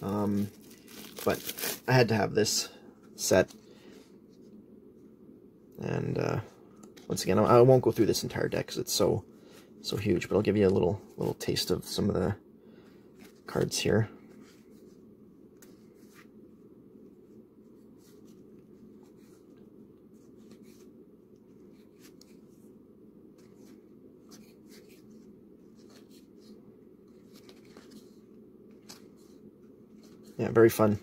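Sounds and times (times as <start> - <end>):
low steady hum: 0.0 - 31.0
cards rustling and clicking: 0.2 - 1.9, 23.3 - 30.4.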